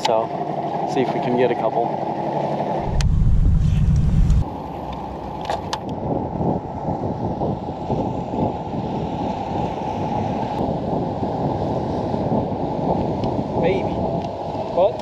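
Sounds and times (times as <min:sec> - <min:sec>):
rushing wind: 0:02.1 - 0:15.0
water noise: 0:02.8 - 0:04.4.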